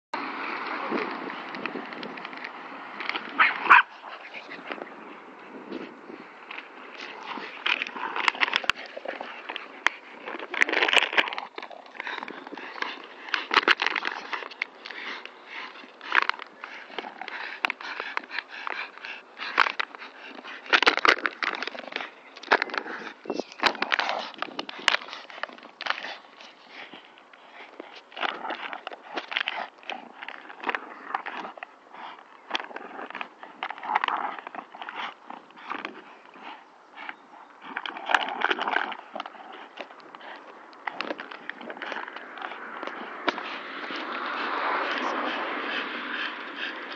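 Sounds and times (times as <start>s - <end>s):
plastic bottle crinkling: 6.6s - 26.6s
plastic bottle crackling: 6.9s - 15.0s.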